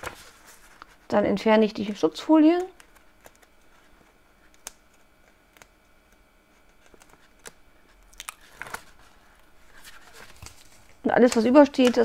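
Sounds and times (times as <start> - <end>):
peeling tape liner crinkles: 2.6 - 12.0.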